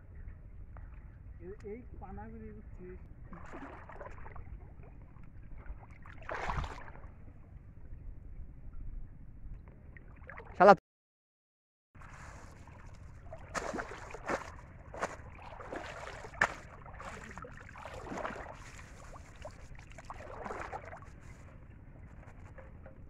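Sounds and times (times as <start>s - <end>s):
water sloshing and splashing: 3.1s - 7.5s, 9.9s - 10.6s, 12.0s - 23.0s.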